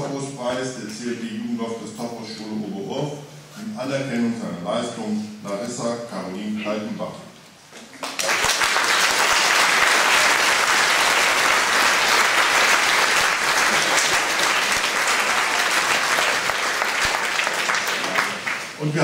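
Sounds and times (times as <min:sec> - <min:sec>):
audience applauding: 0:08.0 - 0:19.0.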